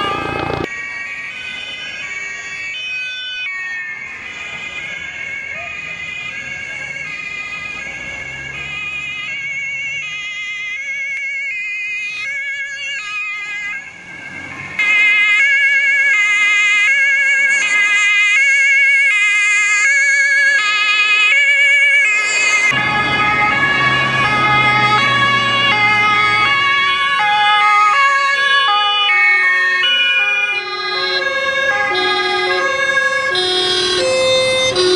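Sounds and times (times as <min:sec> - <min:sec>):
police two-tone siren: 0:00.0 - 0:11.4, 0:12.2 - 0:34.9.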